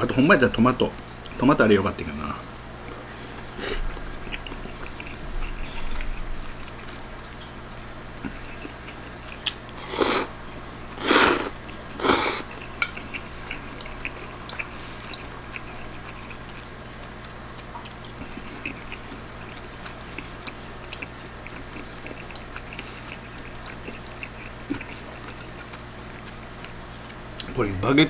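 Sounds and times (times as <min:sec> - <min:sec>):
slurping spaghetti: 0:08.2 - 0:10.4, 0:11.0 - 0:16.6.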